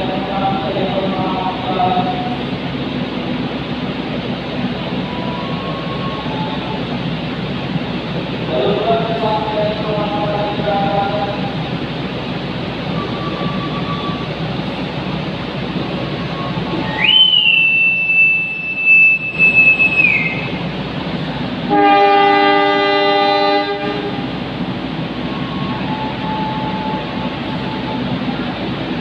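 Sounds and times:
idling trains humming: 0.0s - 29.0s
shrill whistle blast: 16.3s - 20.6s
locomotive horn blast: 21.7s - 24.3s.

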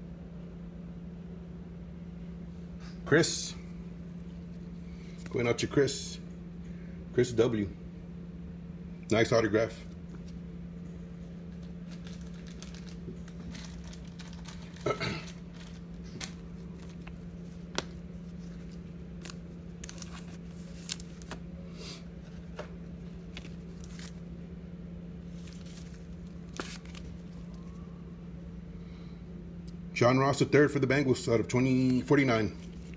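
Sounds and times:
steady low hum: 0.0s - 32.9s
plastic crinkling: 11.5s - 21.4s.

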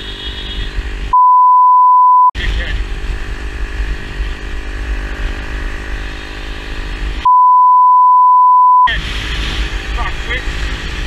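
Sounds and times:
censor bleep: 1.1s - 2.4s, 7.2s - 8.9s
small motorcycle engine running: 2.4s - 7.2s.

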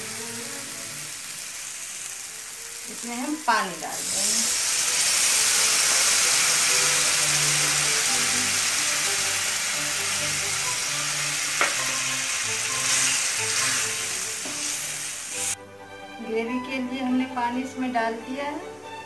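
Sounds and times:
oil sizzling in a pan: 0.0s - 15.6s
background music: 0.0s - 19.0s
spatula knocking on pan: 11.5s - 12.0s.

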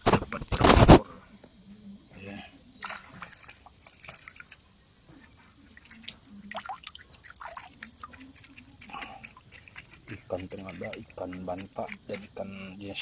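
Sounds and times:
water dripping from net: 2.8s - 11.1s.

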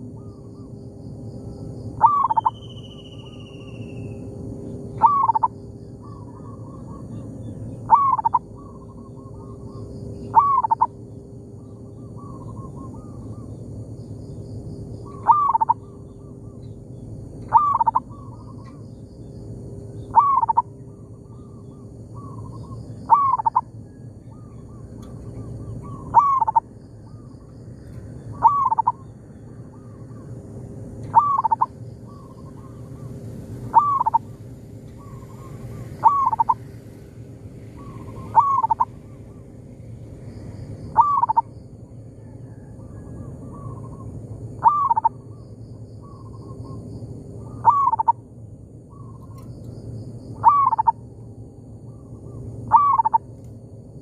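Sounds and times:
dove cooing: 2.0s - 2.6s, 4.9s - 10.9s, 11.9s - 13.6s, 15.0s - 16.6s, 17.4s - 18.8s, 20.1s - 27.3s, 28.3s - 29.1s, 31.0s - 33.1s, 33.7s - 34.3s, 34.9s - 36.7s, 37.8s - 39.4s, 40.9s - 41.5s, 42.2s - 45.3s, 47.4s - 48.2s, 50.4s - 51.0s, 52.2s - 53.3s.

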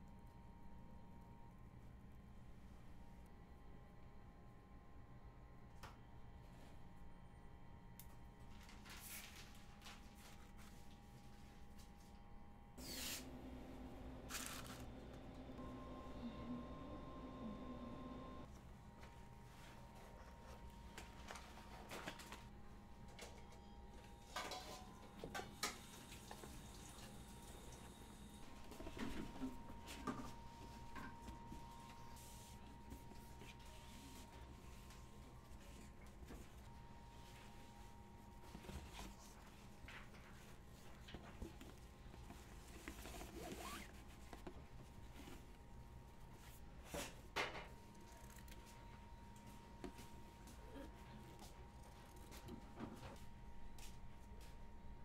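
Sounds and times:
faint hum: 0.0s - 55.0s.

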